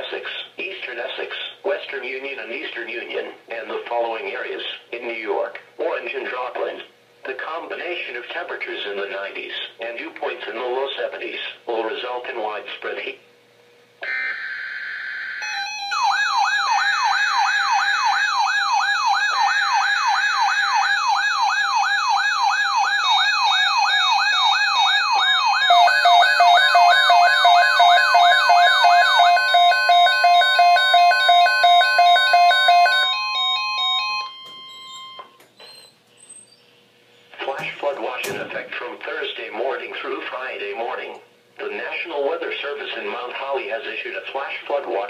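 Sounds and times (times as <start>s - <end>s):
siren-like sweeping alarm: 14.0s - 35.4s
steady alarm tone: 14.0s - 35.4s
rapidly pulsed beeps: 24.7s - 35.3s.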